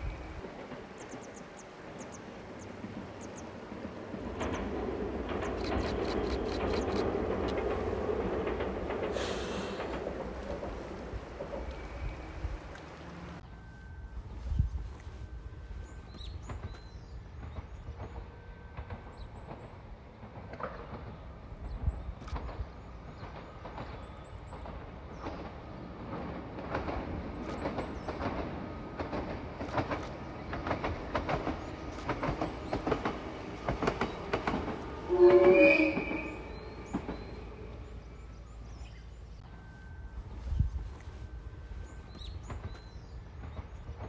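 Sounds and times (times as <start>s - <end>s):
wheels clicking over rail joints: 0.0s - 13.5s, 16.0s - 39.5s
horn blast: 35.1s - 36.5s.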